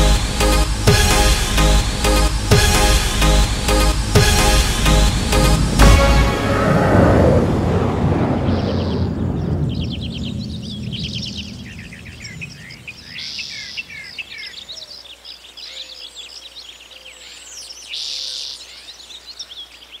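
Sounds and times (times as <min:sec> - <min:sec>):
song music: 0:00.0 - 0:08.1
small birds chirping: 0:08.4 - 0:20.0.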